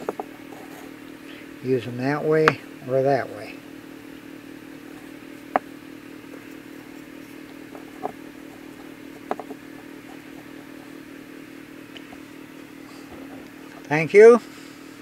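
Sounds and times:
wooden blocks knocking: 0.0 - 0.4, 7.6 - 10.8
steady low hum: 0.0 - 15.0.

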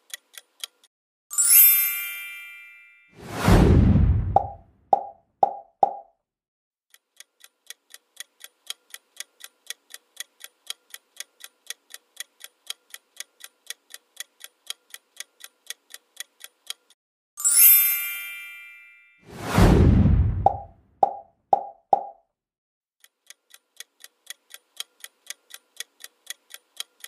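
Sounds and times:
bright chime: 1.3 - 3.2, 17.4 - 19.2
loud whoosh: 3.2 - 4.6, 19.3 - 20.7
countdown timer ticking: 20.4 - 22.2.

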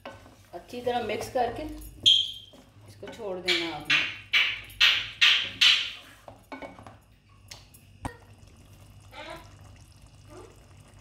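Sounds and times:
spatula knocking on pot: 3.1 - 6.9
faint bubbling of simmering food: 6.1 - 11.0.

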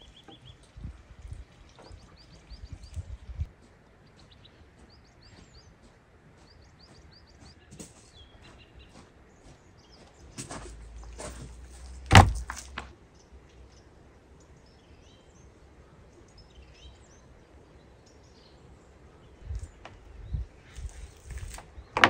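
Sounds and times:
faint birds chirping: 0.0 - 22.0
small knocks: 10.4 - 12.9.

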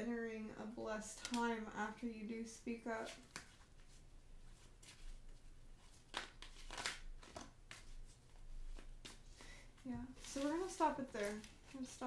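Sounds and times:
cards being shuffled: 3.1 - 12.0.

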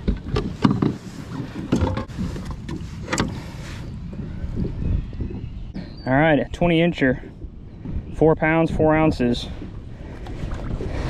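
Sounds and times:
knocks and clicks on kayak hull: 0.0 - 3.4.

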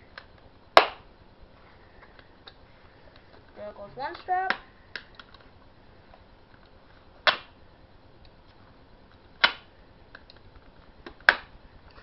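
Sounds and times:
sharp plastic clicks: 4.1 - 5.4, 9.4 - 12.0.

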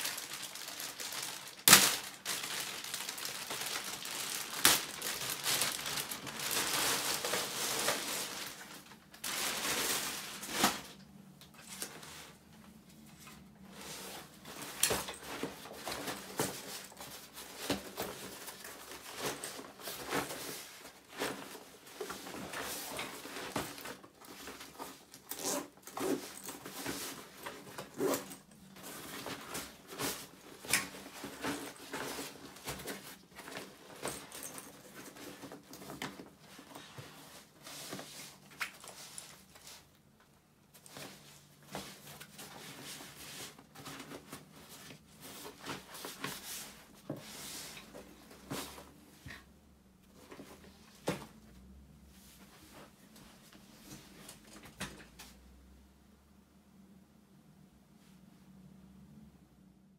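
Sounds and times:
fabric rustling: 0.0 - 49.5
zippers being worked: 25.2 - 26.5.

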